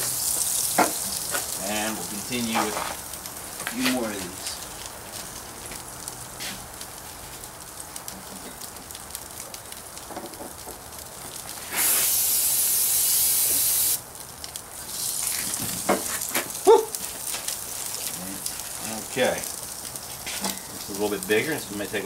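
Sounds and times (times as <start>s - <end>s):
fish sizzling on grill: 0.0s - 22.0s
aerosol spray hissing: 11.7s - 14.0s.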